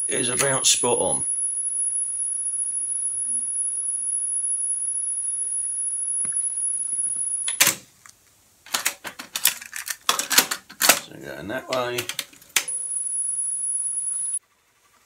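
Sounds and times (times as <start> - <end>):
high-pitched test tone: 0.0 - 7.5, 12.7 - 14.4
tape hiss: 0.0 - 8.7, 11.3 - 15.0.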